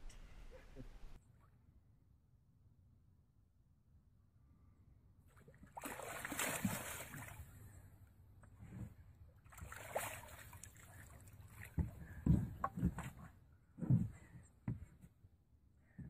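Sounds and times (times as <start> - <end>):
water splashing from thrashing fish: 5.7 - 7.4, 9.5 - 11.6.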